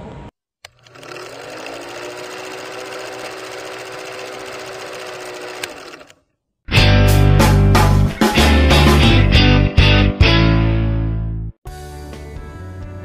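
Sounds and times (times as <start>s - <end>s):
film projector clattering: 0.6s - 6.2s.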